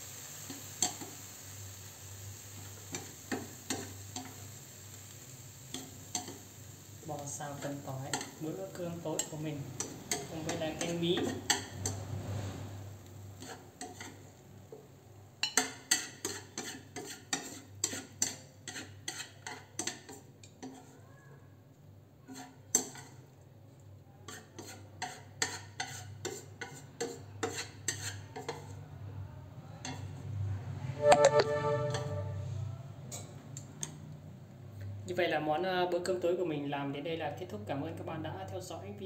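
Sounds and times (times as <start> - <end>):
utensil scraping and knocking on pan: 9.2 - 12.8, 13.4 - 14.2, 15.4 - 20.9, 22.3 - 23.2, 24.3 - 28.7.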